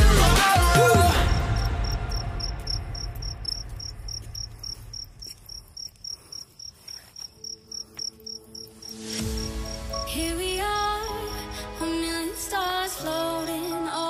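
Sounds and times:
background music: 0.0s - 5.2s, 7.3s - 14.0s
cricket chirping: 1.1s - 11.9s.

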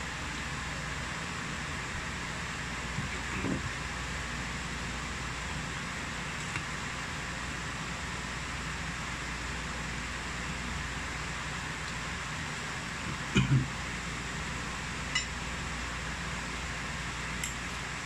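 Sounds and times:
steady room hiss: 0.0s - 18.0s.

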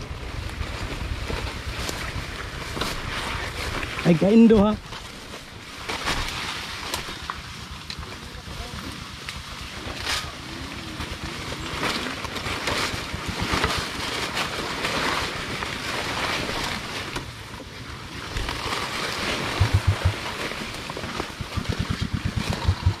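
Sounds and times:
motorcycle engine running: 0.0s - 3.5s, 7.1s - 15.5s, 19.4s - 23.0s
wind buffeting microphone: 19.6s - 20.3s, 21.4s - 23.0s.

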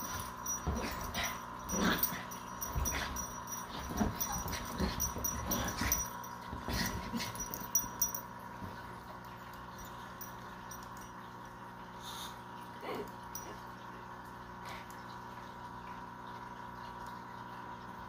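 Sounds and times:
dogs scuffling: 2.6s - 7.8s.

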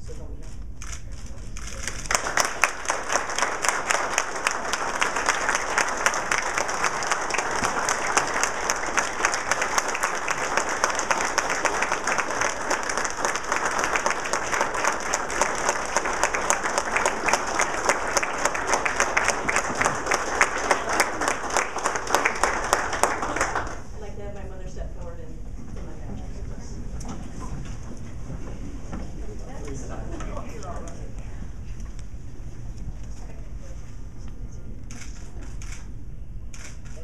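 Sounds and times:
audience applause: 1.8s - 23.9s.

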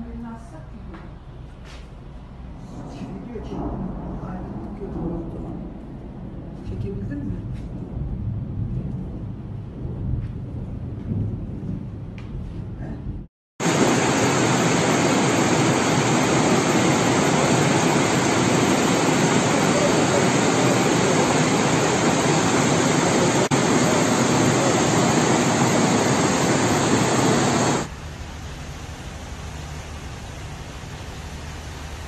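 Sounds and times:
flood water rushing: 13.6s - 32.0s
heavy rain: 13.6s - 32.0s.

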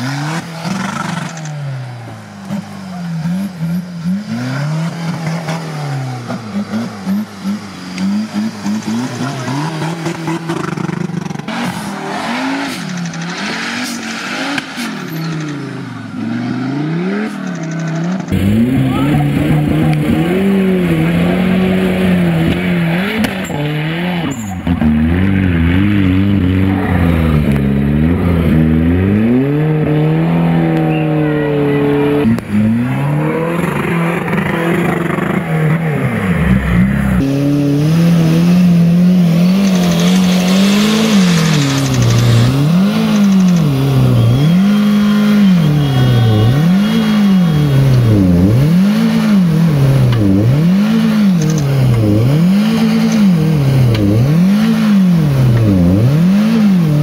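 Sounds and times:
off-road engines revving: 0.0s - 57.0s
wheels spinning in mud: 38.8s - 49.1s.

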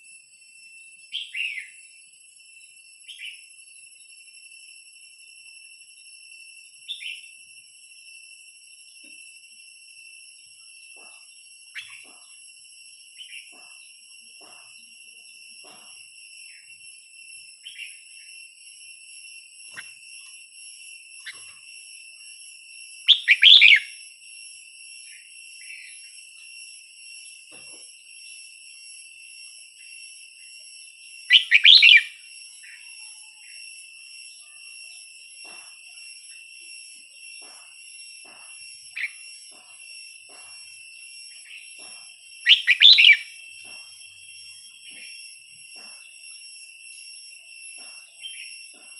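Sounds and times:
soft bird chirps: 6.9s - 7.3s, 11.8s - 12.4s, 23.1s - 24.0s, 31.3s - 33.6s, 42.4s - 45.2s, 48.1s - 48.5s
bird singing loud phrases: 23.1s - 23.9s, 31.3s - 32.1s, 42.5s - 43.3s.

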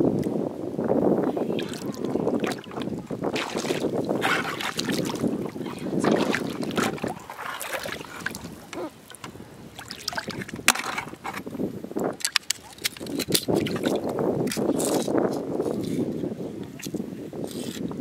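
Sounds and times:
seawater sloshing and splashing: 1.4s - 11.5s, 12.1s - 14.0s.

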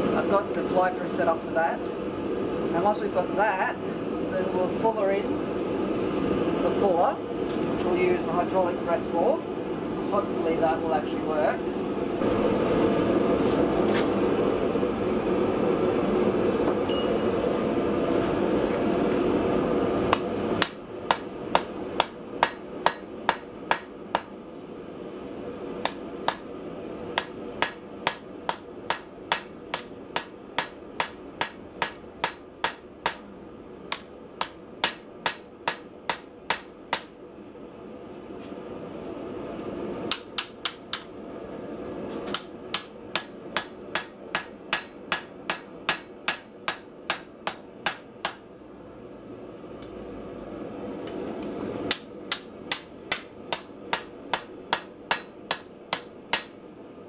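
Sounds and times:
hammer striking steel on anvil: 27.2s - 33.2s, 42.3s - 48.4s, 51.9s - 56.6s.

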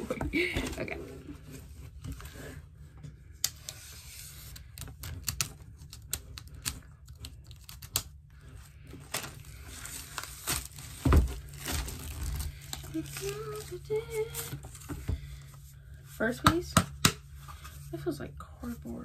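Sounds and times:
packaging rustling: 4.2s - 15.4s.

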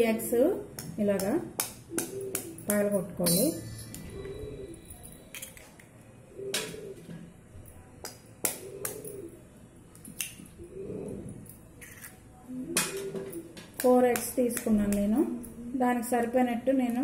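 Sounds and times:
eggs cracking on a metal bowl: 0.0s - 4.1s, 5.2s - 6.8s, 8.0s - 10.6s, 11.6s - 15.6s.

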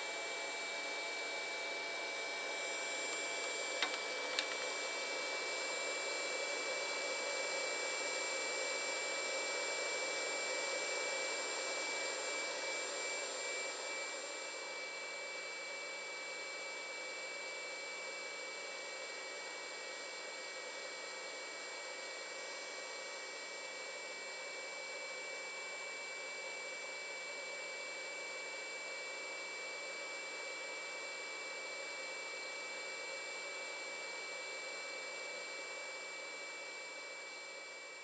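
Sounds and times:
small clicks: 3.8s - 4.7s.

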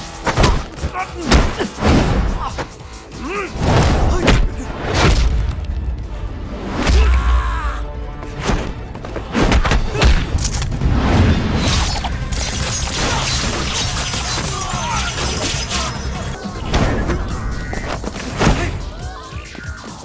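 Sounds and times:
action film music score: 0.0s - 20.0s
punch and kick impacts: 0.2s - 2.7s, 3.6s - 5.5s.

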